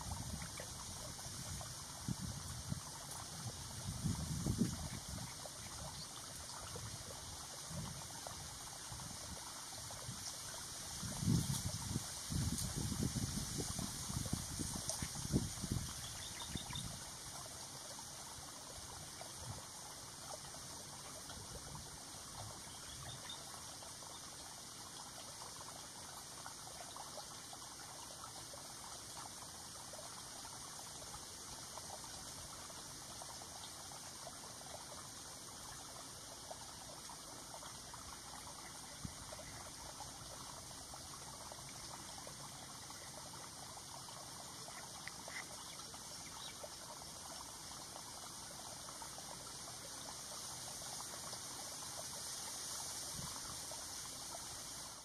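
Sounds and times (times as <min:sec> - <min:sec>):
outdoor pond hiss: 0:00.0 - 0:55.0
soft ticks: 0:45.0 - 0:45.4.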